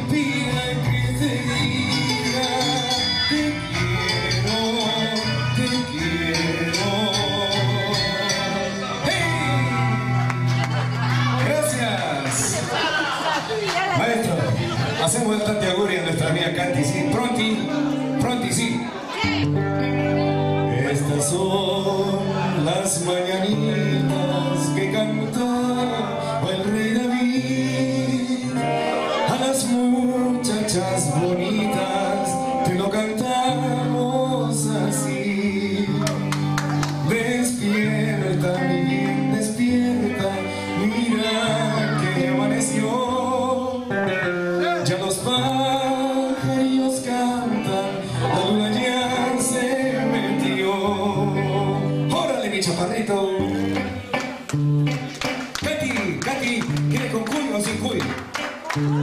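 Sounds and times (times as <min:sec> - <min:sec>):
upbeat song with man singing: 0:00.0 - 0:19.5, 0:20.6 - 0:59.0.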